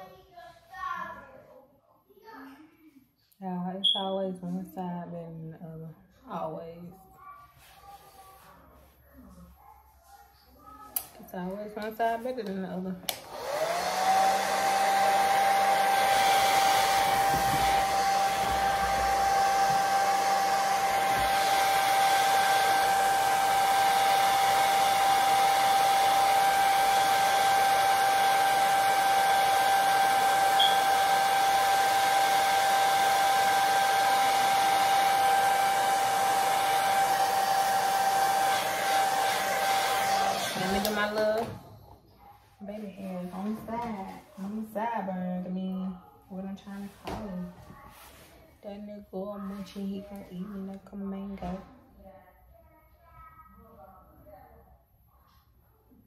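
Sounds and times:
hair dryer blowing: 13.0 - 41.6.

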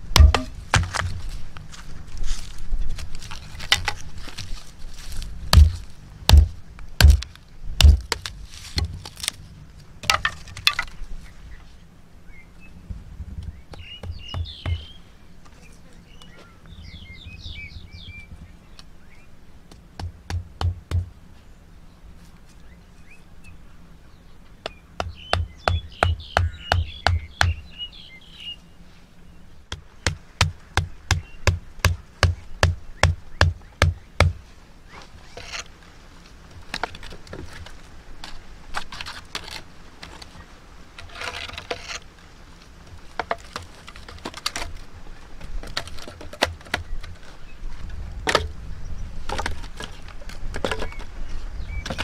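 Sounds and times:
wood rustling and clattering: 0.0 - 11.3, 34.9 - 48.6, 49.2 - 52.0
hatchet knocking stakes: 0.1 - 1.2, 5.5 - 9.0, 19.7 - 21.1, 24.6 - 27.6, 29.7 - 34.4
birds chirping: 9.4 - 19.8, 21.0 - 37.3, 46.6 - 52.0.

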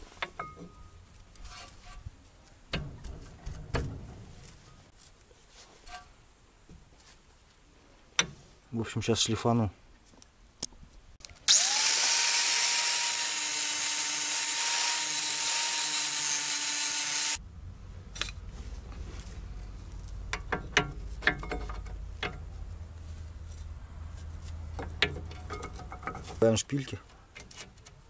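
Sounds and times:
angle grinder grinding: 11.2 - 17.4.

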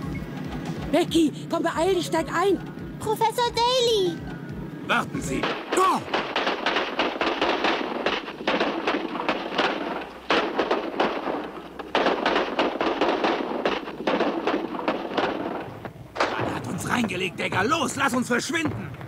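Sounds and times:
cartoon fireworks crackling: 4.9 - 19.0.

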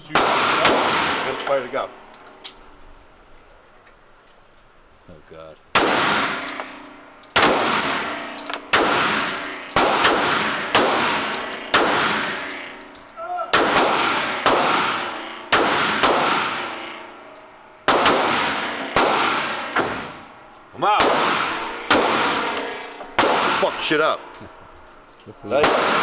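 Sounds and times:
handgun shots echoing indoors: 13.6 - 17.0.

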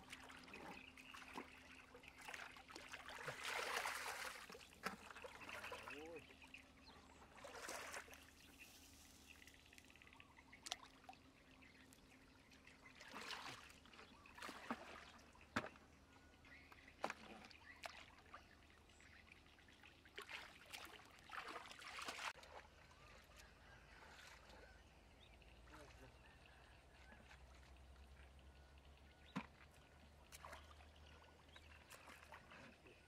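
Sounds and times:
muddy water splashing: 0.0 - 6.4, 7.0 - 11.2, 12.8 - 15.9, 16.5 - 24.8, 29.2 - 33.0.

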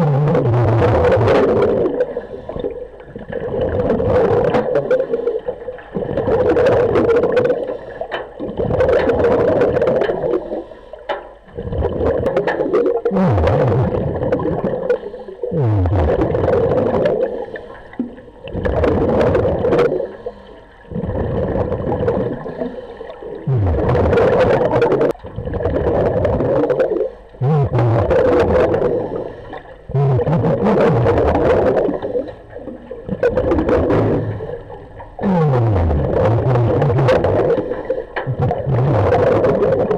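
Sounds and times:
exhaled bubbles rushing: 0.0 - 10.7, 11.4 - 39.9
diver breathing through regulator: 10.3 - 11.1, 19.9 - 21.3, 22.4 - 23.3, 28.5 - 32.5, 33.7 - 34.9.

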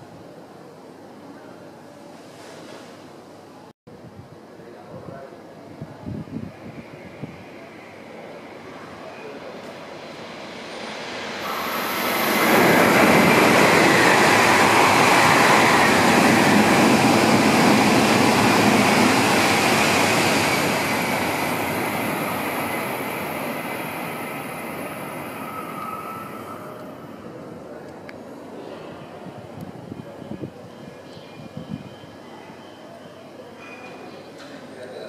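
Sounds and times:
train passing with rushing roar: 5.4 - 33.5.

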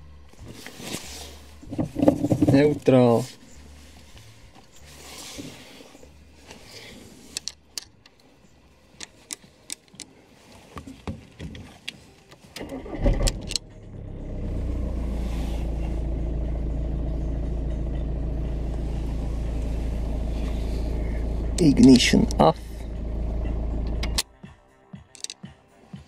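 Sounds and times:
car engine idling: 0.0 - 9.2, 12.6 - 24.2
car starter cranking: 12.6 - 24.2.

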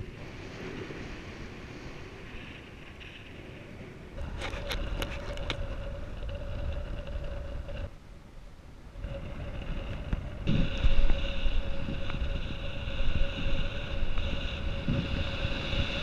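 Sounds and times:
wind buffeting microphone: 0.0 - 16.0
faint steady whistle: 10.2 - 16.0.

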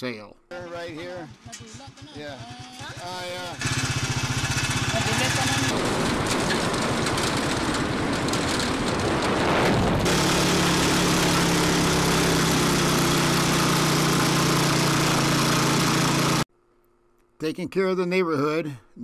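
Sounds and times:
motorcycle engine running: 1.0 - 16.5
road and wind noise: 3.6 - 15.4.

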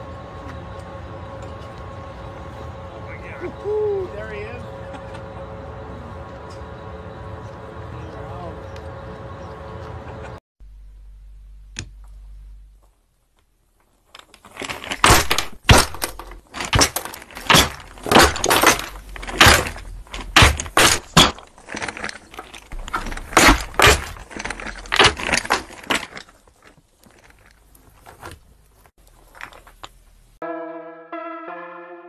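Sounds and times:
synthesizer music: 30.4 - 32.0.

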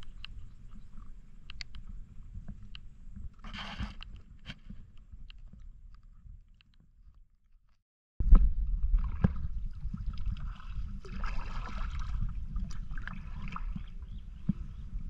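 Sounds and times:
water splashing at boat hull: 8.2 - 14.6
wind rumble on microphone: 8.2 - 15.0.

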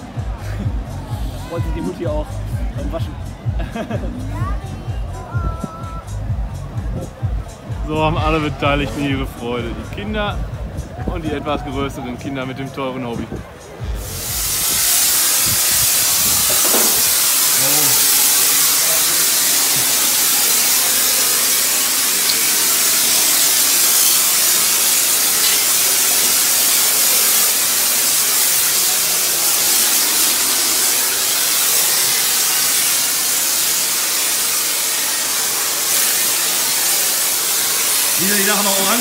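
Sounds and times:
pressure washer jet hissing: 13.8 - 39.0.

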